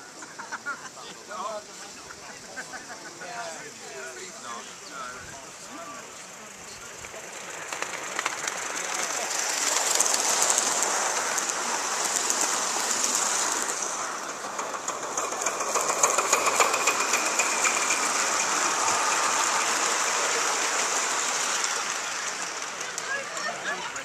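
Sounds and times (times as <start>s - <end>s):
steam hiss: 0.0s - 23.9s
train wheels clicking over rail joints: 6.3s - 24.0s.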